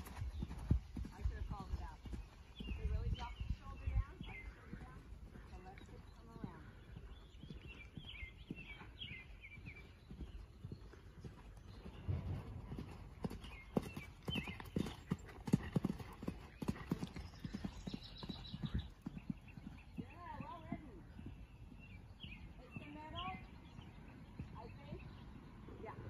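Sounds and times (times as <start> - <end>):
hoofbeats on sand: 0.0 - 9.2.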